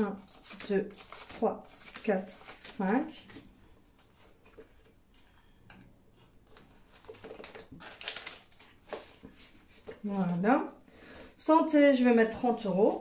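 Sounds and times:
paper rustling and tapping: 0.3s - 5.0s, 6.4s - 10.4s.

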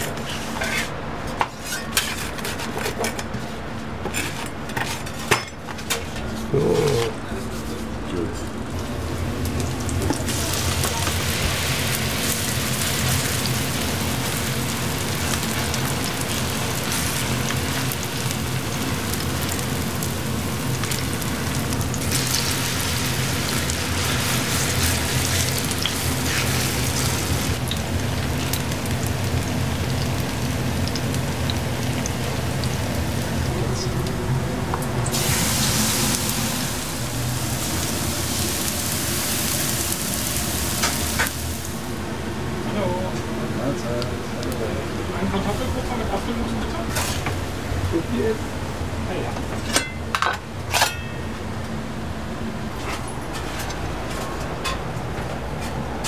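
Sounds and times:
batter sizzling in oil: 8.8s - 34.1s, 35.0s - 42.1s.

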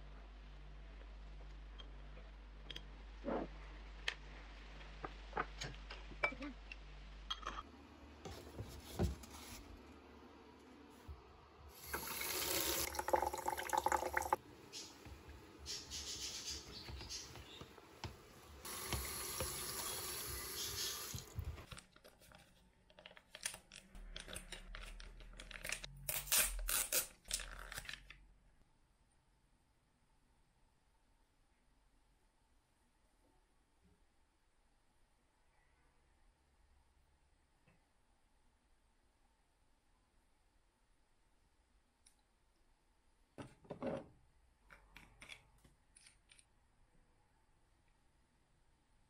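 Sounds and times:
tap water running into basin: 11.8s - 14.4s, 18.6s - 21.6s.

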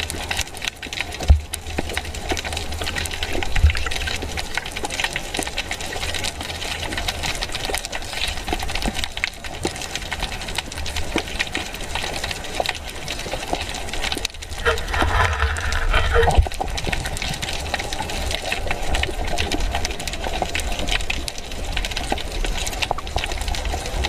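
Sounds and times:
low underwater rumble: 14.4s - 16.9s.

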